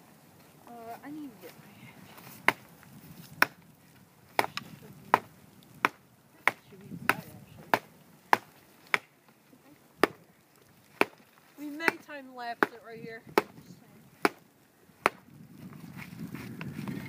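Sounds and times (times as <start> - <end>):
axe chopping tree bark: 2.2 - 3.7, 4.3 - 9.2, 10.0 - 13.6, 14.2 - 15.4.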